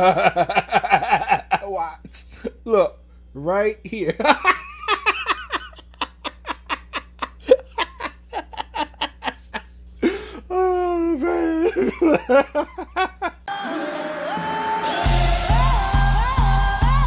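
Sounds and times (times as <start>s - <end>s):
man laughing hard: 0.0s - 2.5s, 4.1s - 14.0s
music: 13.5s - 17.0s.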